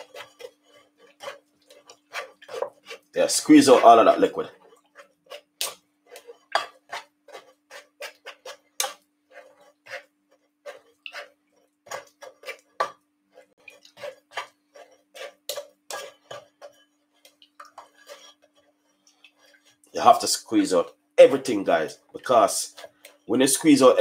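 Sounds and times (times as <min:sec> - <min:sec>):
metal spoon scraping in mesh strainer: 0:00.0 - 0:05.5, 0:06.1 - 0:17.0.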